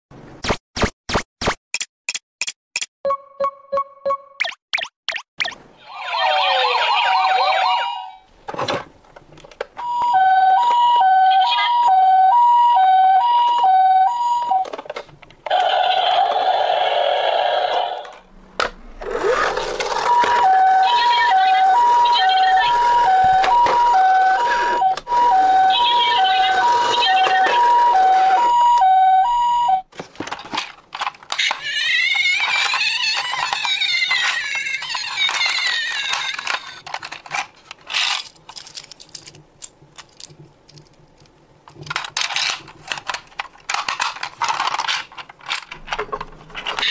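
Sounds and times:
toy siren warbling: 0:05.8 - 0:08.2, 0:09.8 - 0:14.7, 0:15.5 - 0:18.0, 0:19.3 - 0:29.8, 0:31.4 - 0:36.8
two-tone hi-lo siren: 0:09.8 - 0:14.6, 0:20.0 - 0:29.8
plastic toy clicks and knocks: 0:30.2 - 0:46.9.

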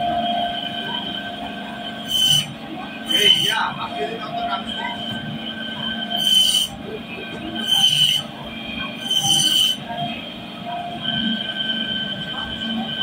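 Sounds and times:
band saw whining: 0:00.0 - 0:13.0
saw blade cutting fish: 0:02.0 - 0:03.6, 0:06.2 - 0:06.8, 0:07.6 - 0:08.3, 0:09.0 - 0:09.8.

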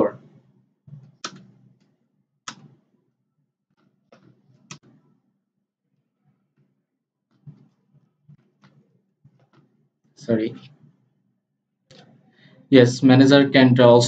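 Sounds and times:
keyboard key clicks: 0:01.2 - 0:01.5.

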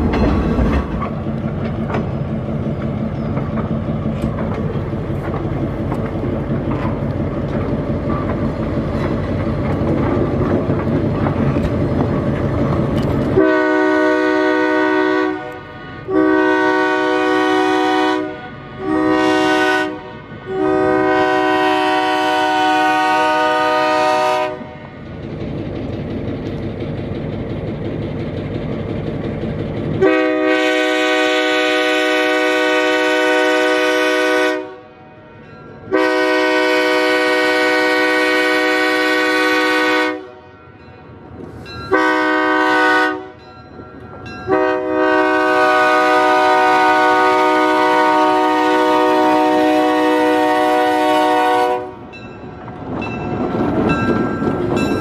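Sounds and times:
train rumbling: 0:00.0 - 0:55.0
locomotive air horn blasts: 0:13.4 - 0:24.8, 0:30.0 - 0:35.0, 0:35.9 - 0:40.6, 0:41.9 - 0:43.4, 0:44.5 - 0:52.0.

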